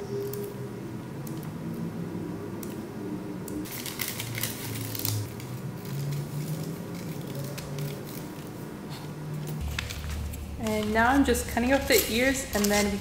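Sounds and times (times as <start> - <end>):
scissors snipping paper: 3.7 - 11.2, 11.9 - 13.0
light paper rustling: 3.7 - 13.0.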